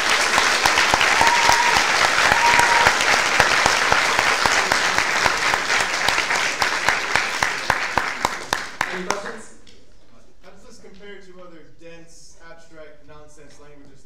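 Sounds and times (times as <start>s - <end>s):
audience clapping: 0.0s - 9.8s.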